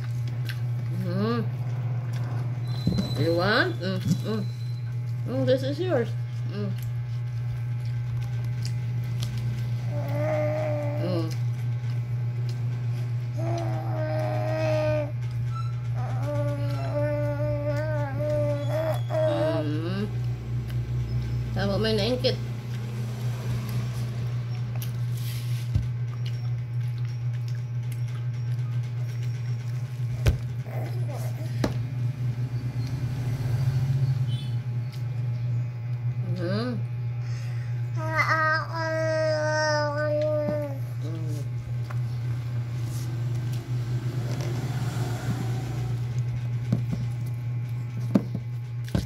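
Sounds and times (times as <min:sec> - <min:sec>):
appliance humming: 0:00.0 - 0:49.0.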